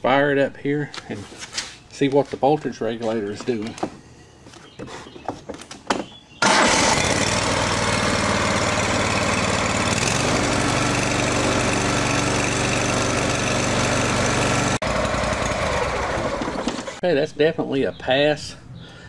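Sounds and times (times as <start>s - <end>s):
riding mower engine running: 6.4s - 17.0s.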